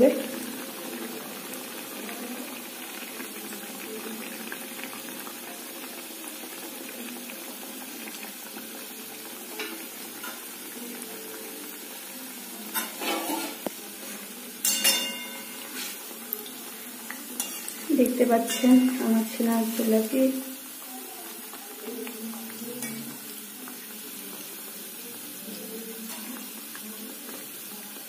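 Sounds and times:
food deep-frying in oil: 0:00.0 - 0:28.0
metal spoon scraping a pan: 0:12.7 - 0:13.7, 0:14.6 - 0:16.1, 0:17.4 - 0:20.1, 0:22.8 - 0:23.2.

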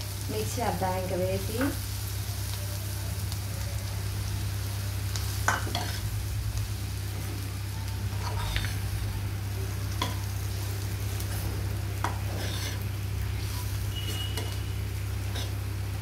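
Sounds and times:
faint sizzle: 0:00.0 - 0:16.0
steady low hum: 0:00.0 - 0:16.0
spatula scraping pan: 0:08.2 - 0:08.8, 0:11.3 - 0:14.6, 0:15.2 - 0:15.6.

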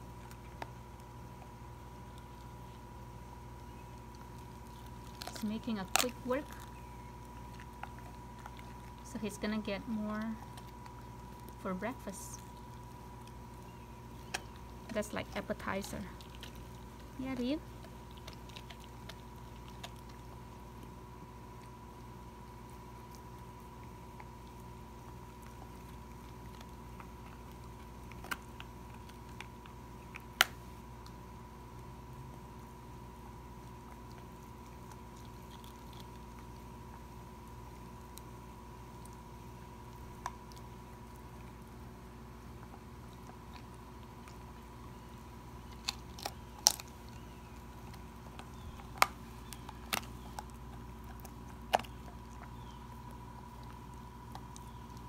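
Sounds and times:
dog gnawing bones: 0:00.0 - 0:55.0
low steady hum: 0:00.0 - 0:55.0
bone cracking: 0:25.2 - 0:31.2, 0:42.6 - 0:55.0.

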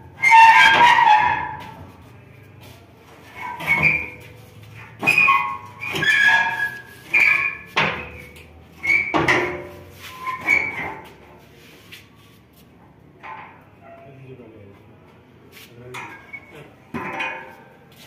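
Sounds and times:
heavy steel parts clanking: 0:15.9 - 0:17.8.

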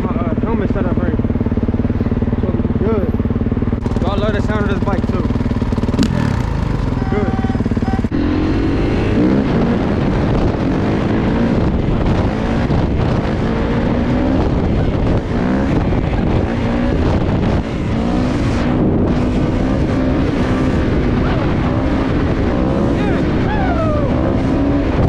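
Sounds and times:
dirt bike engine accelerating: 0:00.0 - 0:25.0
wind noise on microphone: 0:05.8 - 0:25.0.

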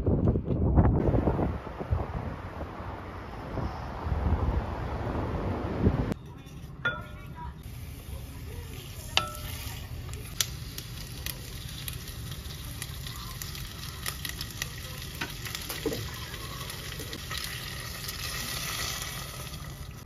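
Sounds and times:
onions sizzling in oil: 0:07.6 - 0:20.0.

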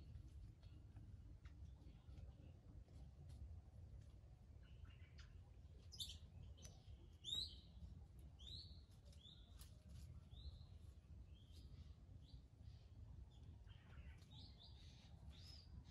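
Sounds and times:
small birds chirping: 0:04.5 - 0:15.9.

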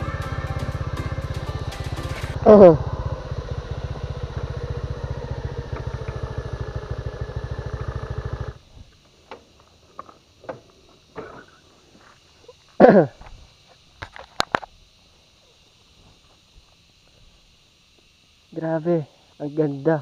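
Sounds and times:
motorcycle engine running: 0:00.0 - 0:11.1.

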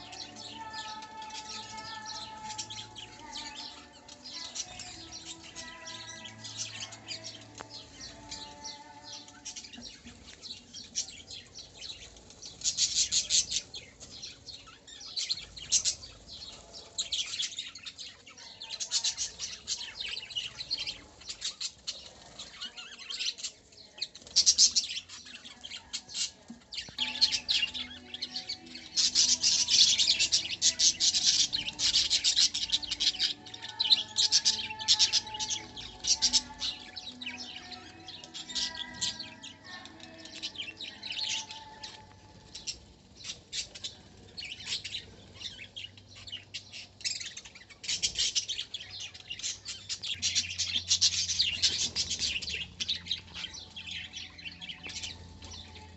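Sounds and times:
birds chirping and chattering: 0:00.0 - 0:55.9.

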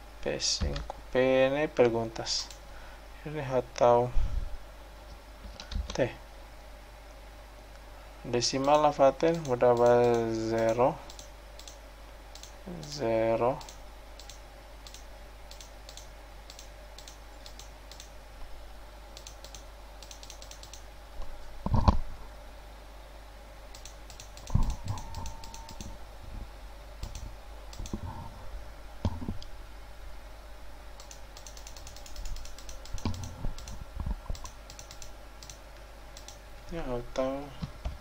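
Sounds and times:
keyboard typing: 0:08.6 - 0:18.2, 0:19.2 - 0:20.9, 0:23.7 - 0:26.0, 0:27.0 - 0:28.0, 0:31.0 - 0:35.6, 0:36.2 - 0:36.4.

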